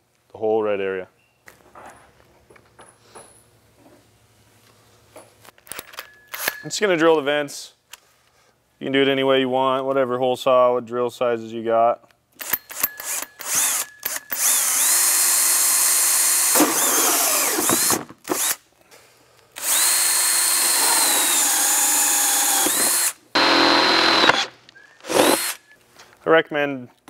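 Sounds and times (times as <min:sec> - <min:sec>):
drill cutting through plastic: 0:12.4 - 0:18.6, 0:19.6 - 0:25.8.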